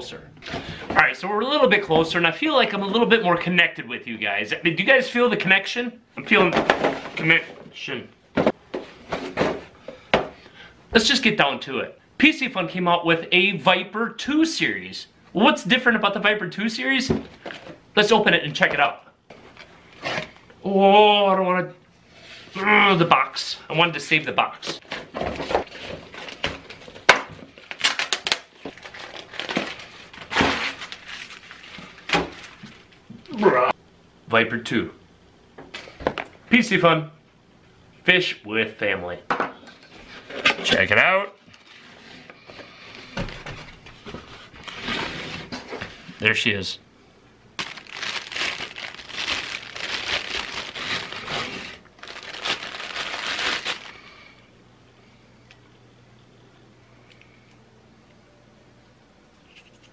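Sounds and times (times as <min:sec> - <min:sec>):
padded envelope tearing and crinkling: 0:27.6 - 0:33.0, 0:47.6 - 0:54.2.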